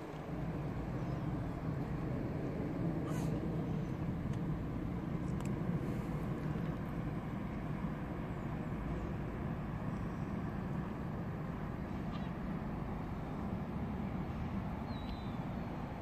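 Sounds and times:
distant road traffic rumble: 0.0s - 16.0s
faint clicks: 5.2s - 5.6s.

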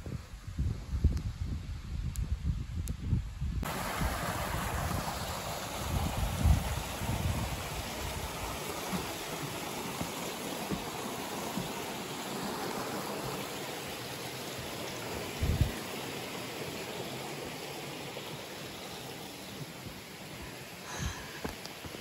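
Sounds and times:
wind rumble on microphone: 0.0s - 10.1s, 15.1s - 15.9s
stream rushing over rocks: 3.6s - 22.0s.

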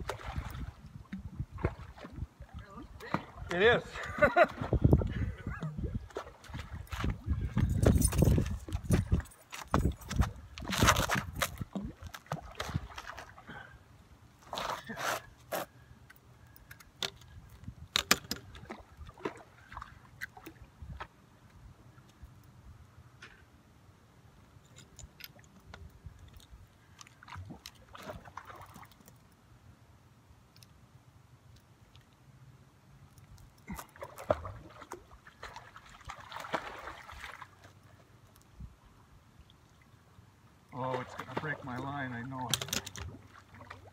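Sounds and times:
water splashing from thrashing fish: 0.0s - 0.8s, 33.8s - 37.6s, 40.8s - 41.8s.

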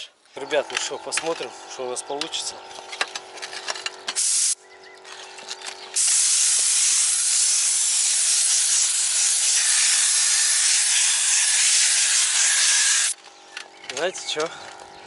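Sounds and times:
spray gun hissing: 4.2s - 4.6s, 6.0s - 13.2s.

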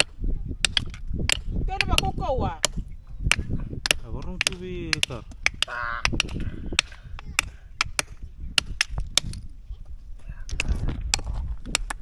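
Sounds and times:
hammers cracking shells: 0.0s - 9.5s.

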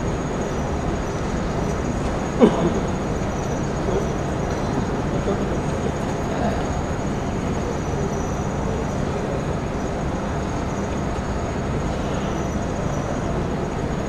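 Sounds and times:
hall background rumble and hiss: 0.0s - 14.0s.

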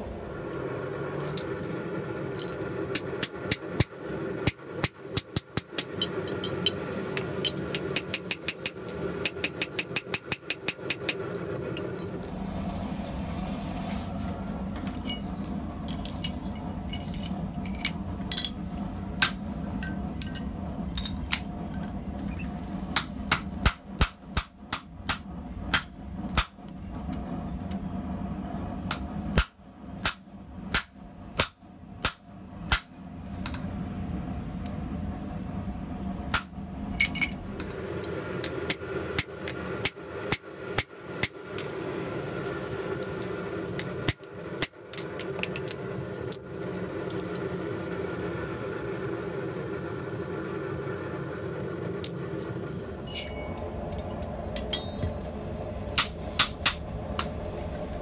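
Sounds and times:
hammer striking steel on anvil: 7.4s - 11.2s, 19.2s - 21.5s, 22.9s - 26.6s, 28.9s - 32.9s, 53.1s - 53.7s, 54.6s - 55.2s, 56.0s - 56.8s.

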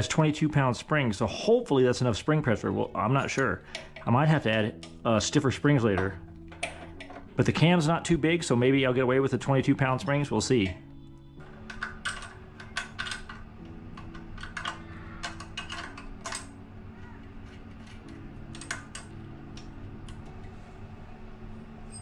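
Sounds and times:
quiet background music: 0.0s - 22.0s
small metal parts clinking: 6.0s - 7.3s, 11.6s - 16.6s, 17.4s - 19.2s.

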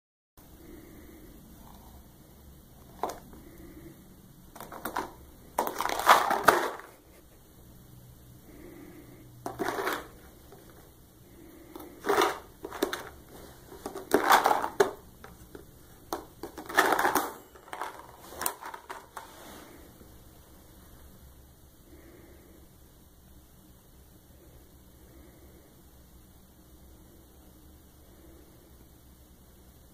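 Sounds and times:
plastic tub scraping and crinkling: 4.6s - 6.9s, 9.4s - 10.9s, 11.8s - 15.4s.

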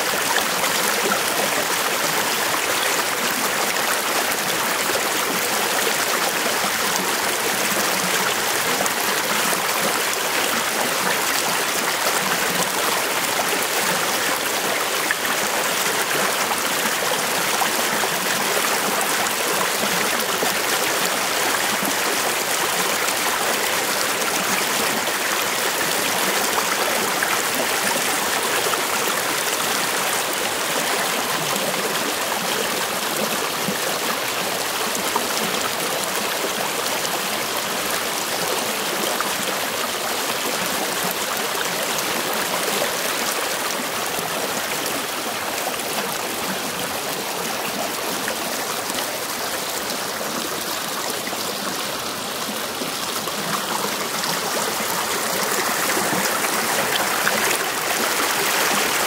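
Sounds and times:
water rushing over rocks: 41.0s - 59.0s.

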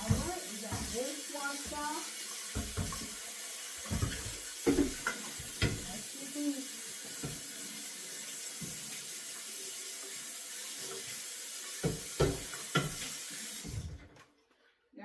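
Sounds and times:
pot knocking against sink: 0.0s - 1.0s, 2.5s - 3.2s, 3.8s - 5.9s, 11.8s - 13.0s
tap water running: 0.0s - 14.6s.

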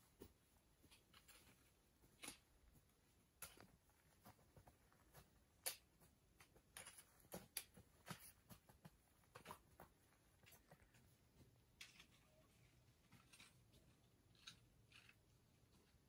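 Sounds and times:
faint small clicks and taps: 0.1s - 12.4s.

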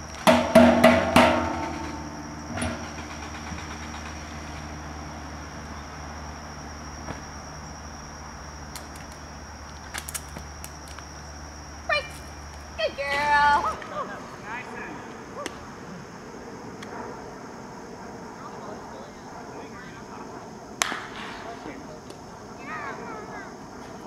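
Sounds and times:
loud ringing bangs: 0.0s - 5.4s
insects droning: 0.0s - 24.0s.

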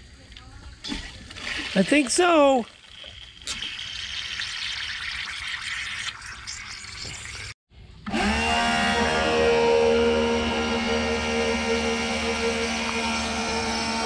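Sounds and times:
water rushing in plumbing: 0.8s - 7.6s, 8.2s - 14.0s
water pump motor whine: 8.0s - 14.0s.

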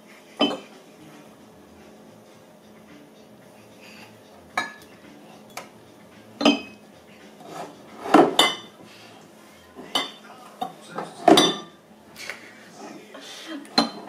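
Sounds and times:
glass bottles clinking: 0.4s - 0.7s, 4.5s - 5.7s, 6.4s - 6.8s, 7.5s - 8.8s, 9.8s - 11.8s, 13.8s - 14.0s.

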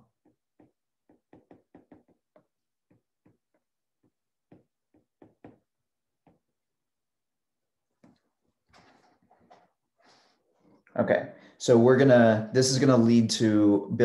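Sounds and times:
stylus tapping on glass screen: 0.0s - 6.5s.

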